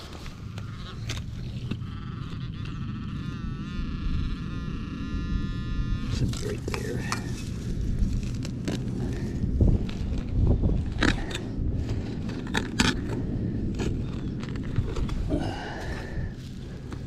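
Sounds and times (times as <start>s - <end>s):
digging in dirt: 6.1s - 17.0s.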